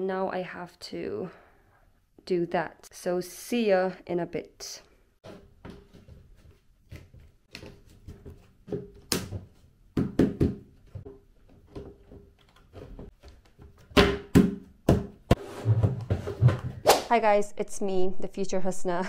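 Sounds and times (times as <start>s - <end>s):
shelf unit knocking and thudding: 7.0s - 16.8s.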